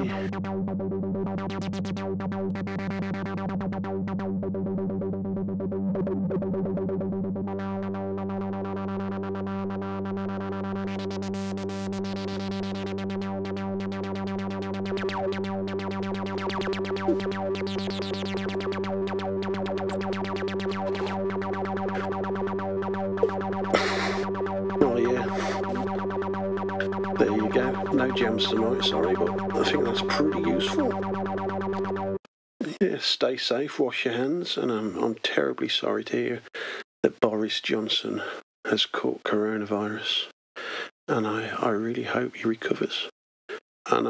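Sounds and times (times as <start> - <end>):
synthesizer repeating low note: 0.0 - 32.2.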